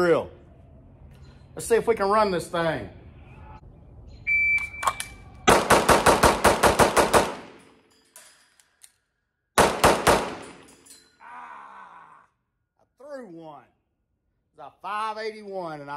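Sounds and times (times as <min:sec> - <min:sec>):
pistol shots: 0:05.5 - 0:07.6, 0:09.6 - 0:10.7.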